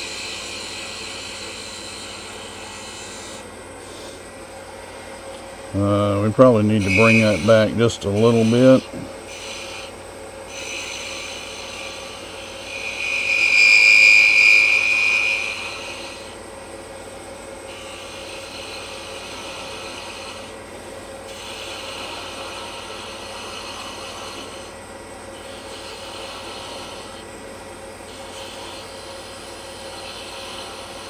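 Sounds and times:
turning tool scraping wood: 0.0 - 4.3, 6.4 - 16.4, 17.7 - 24.8, 25.4 - 27.3
high-pitched whine: 0.0 - 20.6
wood lathe humming: 0.0 - 31.0.

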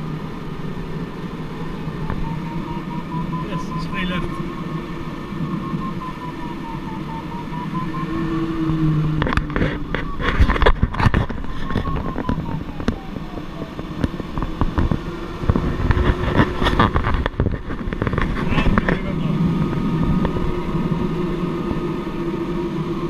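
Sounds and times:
airflow rushing over canopy: 0.0 - 23.0
variometer beeping: 1.7 - 17.0.

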